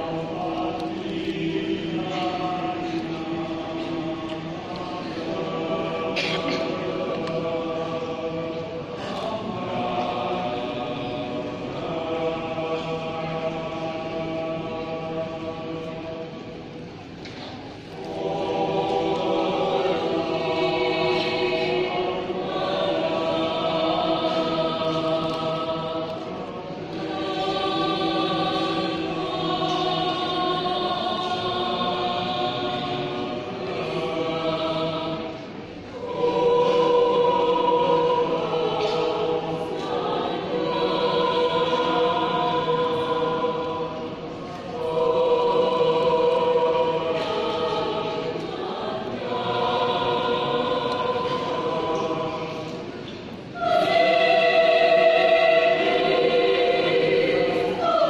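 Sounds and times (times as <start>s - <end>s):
mixed choir singing: 0.0s - 58.0s.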